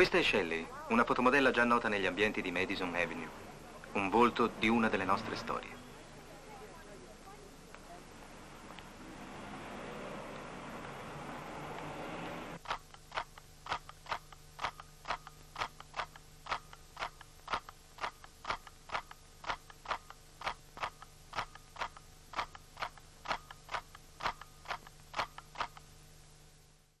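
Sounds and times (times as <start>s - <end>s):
faint steady hum: 0.0s - 27.0s
camera shutter clicking: 12.6s - 25.8s.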